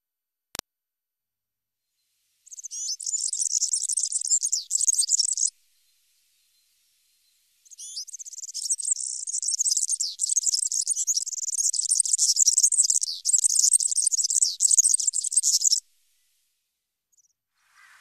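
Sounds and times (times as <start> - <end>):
bird twittering song: 2.4 - 15.8.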